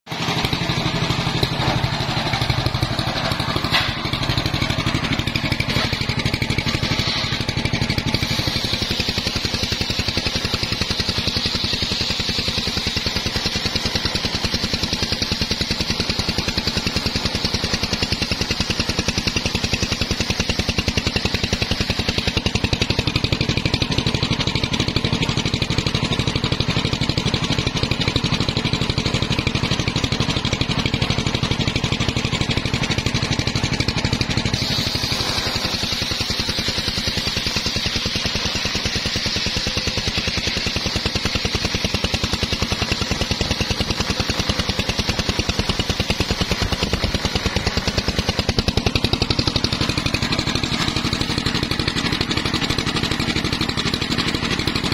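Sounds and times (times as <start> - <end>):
circular saw ripping log: 0.5 - 23.3, 34.0 - 54.9.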